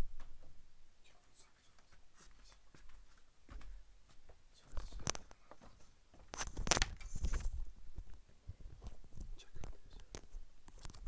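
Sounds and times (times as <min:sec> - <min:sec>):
rustling and clicking handling noise: 0:04.3 - 0:11.0.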